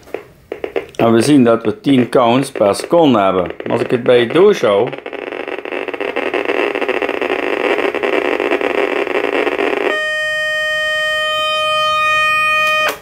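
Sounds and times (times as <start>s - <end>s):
geiger counter crackling buzz: 0.0s - 13.0s
high alarm tone: 3.5s - 13.0s.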